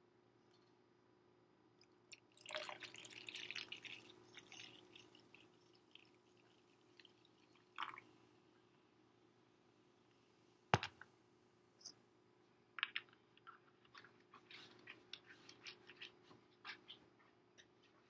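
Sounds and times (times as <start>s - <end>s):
person gulping soda: 1.8s - 8.2s.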